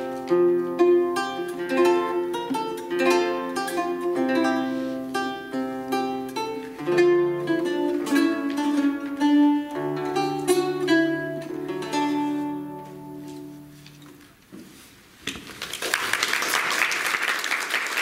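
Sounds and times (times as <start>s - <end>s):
solo lute playing: 0.0s - 14.2s
audience applause: 15.4s - 18.0s.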